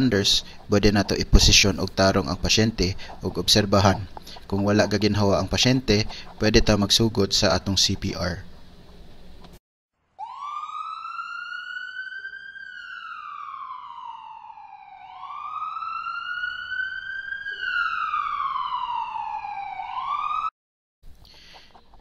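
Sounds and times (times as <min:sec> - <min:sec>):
emergency vehicle siren wailing: 0:10.2 - 0:20.5.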